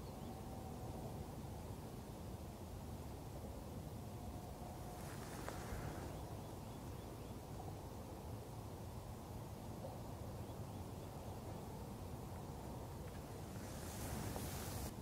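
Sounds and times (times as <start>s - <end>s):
wind rumble: 12.5s - 15.0s.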